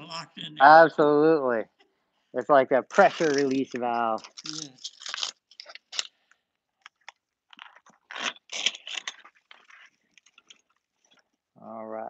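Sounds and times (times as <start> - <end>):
hook-and-loop straps ripping: 2.9 - 11.3.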